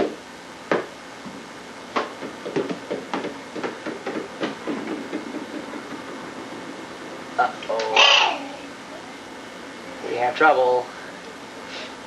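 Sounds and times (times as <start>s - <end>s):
sharp knocks and taps: 1.9s - 6.7s.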